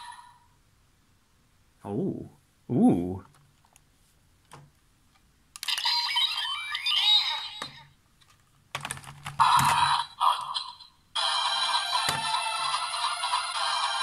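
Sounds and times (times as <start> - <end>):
toy belt electronic chimes: 5.6 - 7.8.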